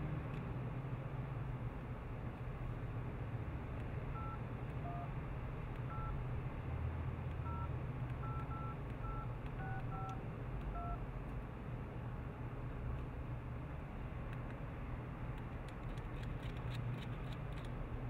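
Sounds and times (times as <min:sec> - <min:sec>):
steady low hum: 0:00.0 - 0:18.0
two-tone dialling beeps: 0:04.2 - 0:05.1, 0:05.9 - 0:06.2, 0:07.4 - 0:10.2, 0:10.8 - 0:11.0.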